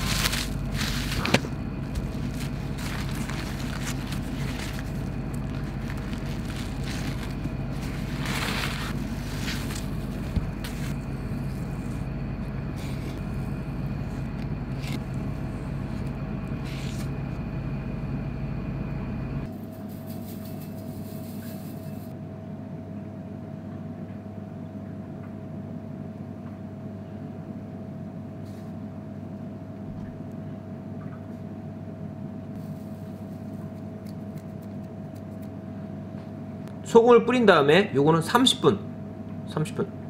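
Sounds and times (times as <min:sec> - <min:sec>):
kitchen equipment humming: 0:00.0 - 0:22.2
thin constant whine: 0:00.0 - 0:40.0.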